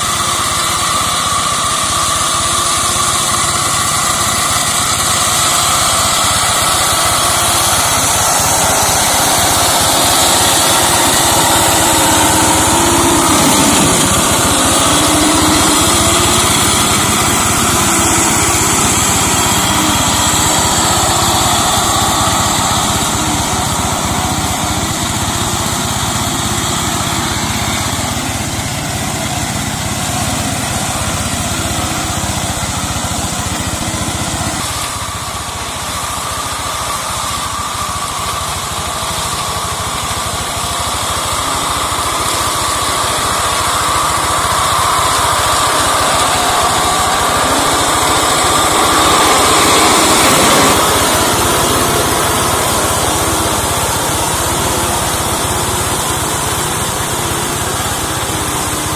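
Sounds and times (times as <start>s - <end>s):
diesel engine running under load: 0.0s - 58.9s.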